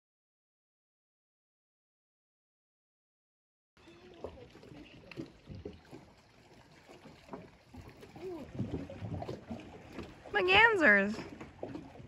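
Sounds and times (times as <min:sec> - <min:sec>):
small waves lapping against shore: 0:03.8 - 0:12.0.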